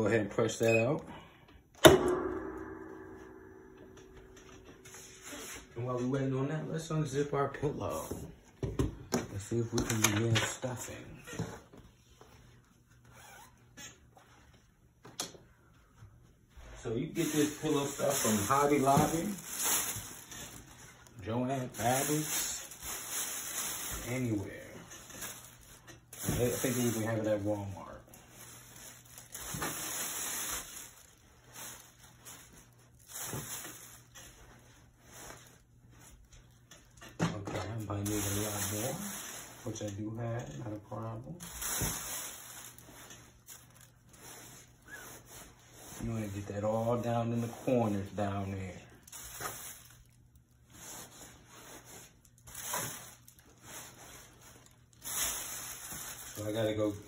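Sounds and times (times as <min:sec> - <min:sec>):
pillow stuffing rustling: 0:17.1 - 0:36.5, 0:49.1 - 0:57.0
plastic bag crinkling: 0:17.1 - 0:37.0, 0:37.9 - 0:45.6, 0:48.9 - 0:57.0.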